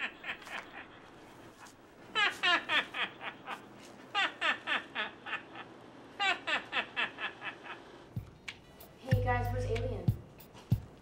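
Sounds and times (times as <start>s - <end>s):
laughter in short falling calls: 0.0s - 7.9s.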